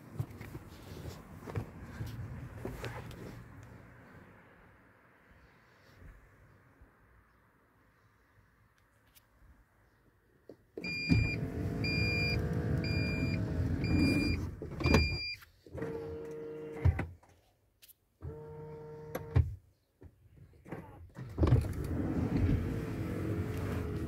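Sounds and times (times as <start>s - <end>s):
sliding car door running: 11.1s - 15.0s, 21.3s - 24.0s.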